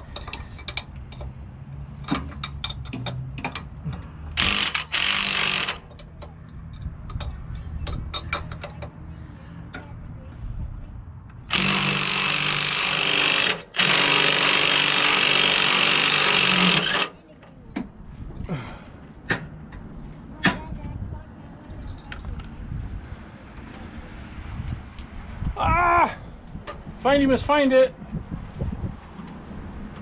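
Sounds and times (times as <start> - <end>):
cordless drill running: 4.4 - 5.9, 11.5 - 17.2.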